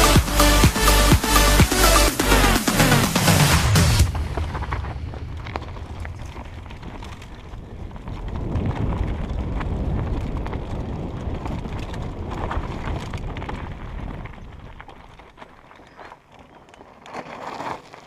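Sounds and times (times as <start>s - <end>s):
wind rumbling on microphone: 4.0s - 16.8s
bike rattling and knocking: 4.0s - 18.0s
tyres crunching over stones: 4.0s - 18.0s.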